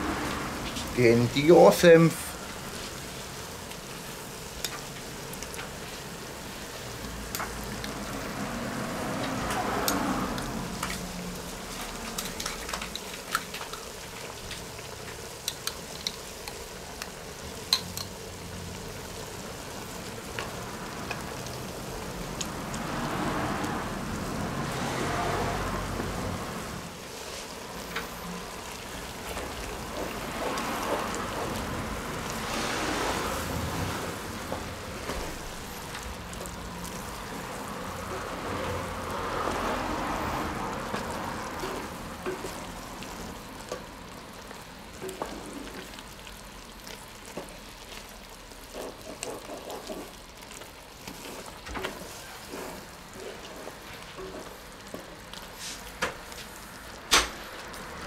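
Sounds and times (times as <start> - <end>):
sauce simmering and sizzling: 0.0 - 58.0
spatula scraping through sauce: 48.6 - 54.5.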